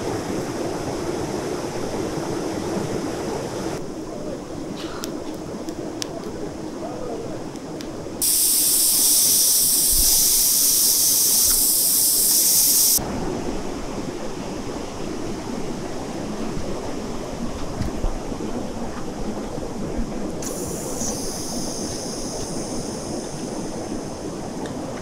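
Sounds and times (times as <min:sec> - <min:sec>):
pressure cooker steam hissing: 0:08.2 - 0:13.0, 0:20.4 - 0:24.3.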